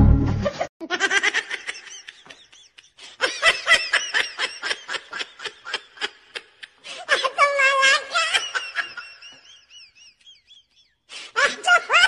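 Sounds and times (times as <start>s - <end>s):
person giggling: 0.4s - 7.4s.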